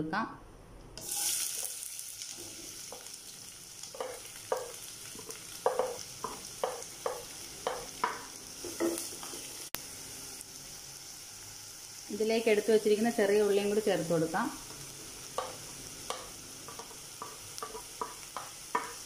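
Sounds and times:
onions sizzling in hot oil: 1.0s - 19.0s
wooden spatula knocking and scraping: 4.0s - 9.4s, 15.4s - 19.0s.

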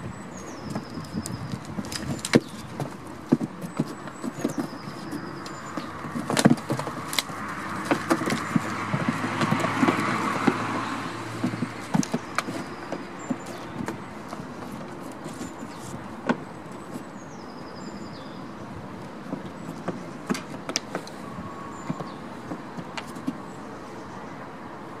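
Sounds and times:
broad rush of noise: 0.0s - 25.0s
hooves knocking on plywood: 0.5s - 17.2s, 19.0s - 23.6s.

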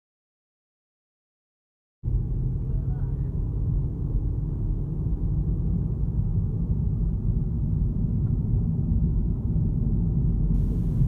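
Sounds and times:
car road and engine rumble: 2.1s - 11.0s.

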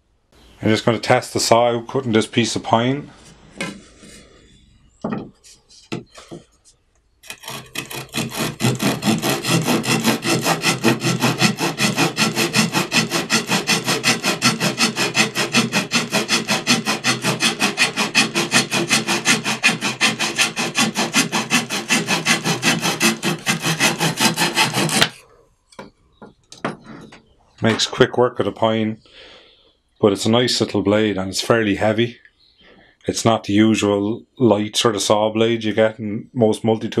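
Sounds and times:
hand saw cutting wood: 7.2s - 25.3s.

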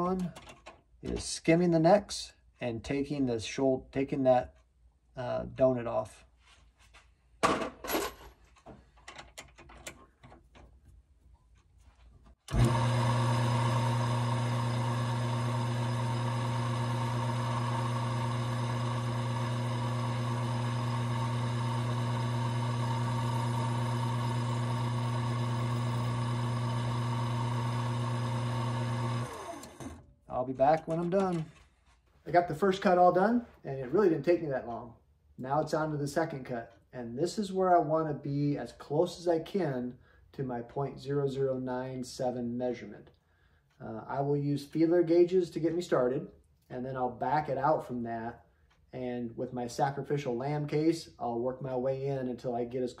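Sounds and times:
lathe motor running: 12.5s - 30.0s.

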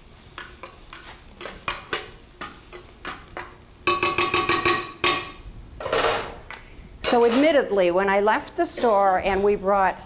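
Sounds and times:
faint sizzle: 0.0s - 10.0s
metal spoon scraping a pan: 0.3s - 5.2s.

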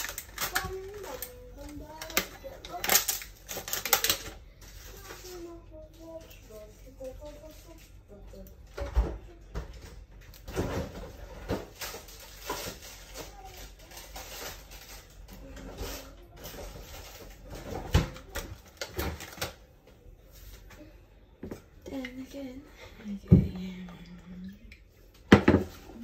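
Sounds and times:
household knocks and clatter: 8.7s - 13.2s, 25.2s - 26.0s.

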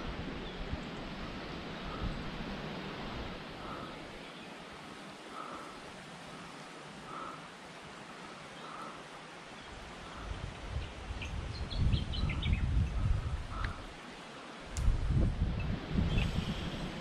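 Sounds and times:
wind buffeting the microphone: 0.0s - 5.6s, 9.7s - 17.0s
stream hissing: 13.3s - 17.0s.

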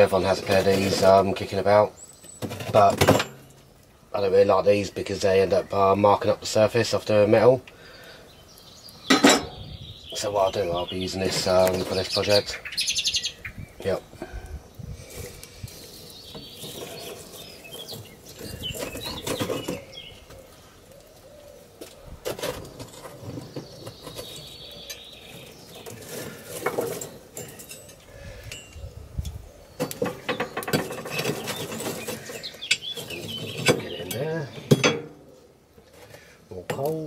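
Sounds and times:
birds chirping: 0.0s - 37.0s
coal and pliers clinking in forge: 25.8s - 35.1s.

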